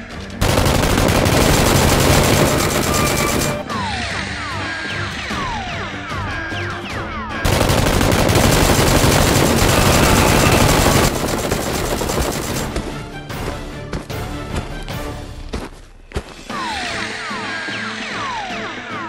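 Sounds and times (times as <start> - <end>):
background music: 0.0 - 19.0
rapid automatic gunfire: 0.4 - 3.6, 7.4 - 12.7.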